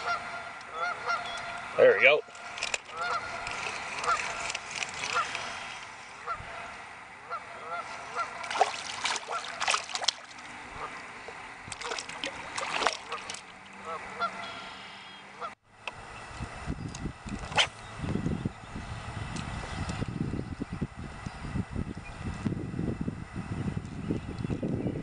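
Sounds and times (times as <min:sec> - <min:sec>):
honking bird calls: 0:00.0 - 0:02.0, 0:02.8 - 0:05.5, 0:07.2 - 0:08.5, 0:13.0 - 0:15.6
fish splashing at water surface: 0:02.3 - 0:06.4, 0:07.8 - 0:14.3.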